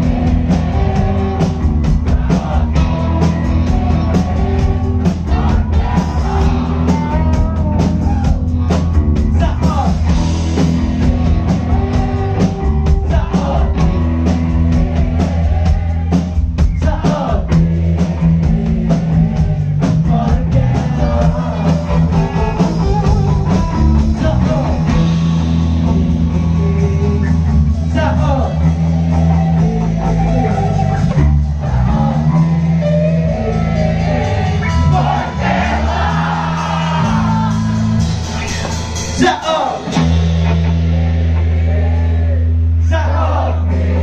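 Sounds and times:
singing: 0.0s - 8.4s, 11.1s - 24.8s
rock band playing live: 0.0s - 44.0s.

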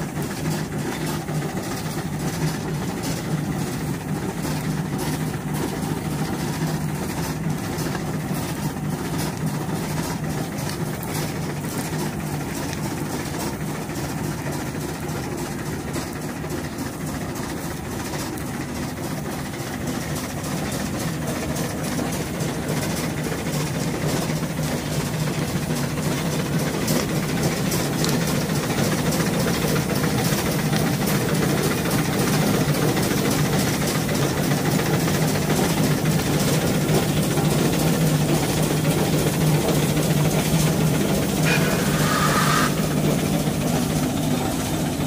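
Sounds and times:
steam traction engine drone: 0.0s - 45.0s
brief higher tone: 41.4s - 42.8s.

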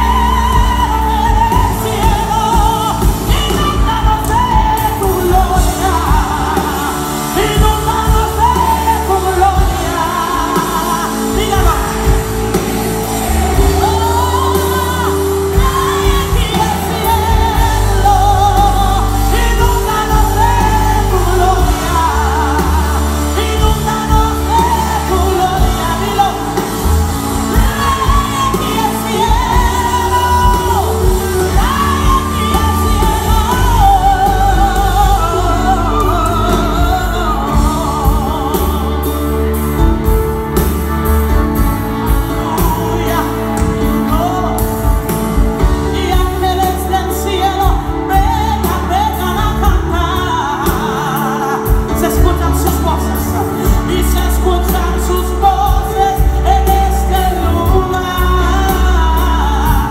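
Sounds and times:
live band playing: 0.0s - 59.9s
woman singing: 0.0s - 59.9s.

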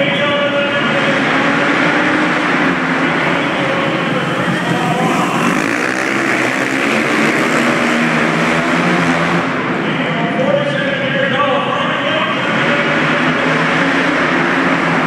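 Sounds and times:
racing motorcycles revving: 0.0s - 15.0s.

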